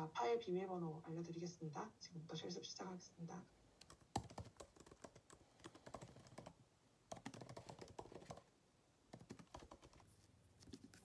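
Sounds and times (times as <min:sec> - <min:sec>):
typing on a laptop keyboard: 0:03.8 - 0:08.5, 0:09.1 - 0:11.0.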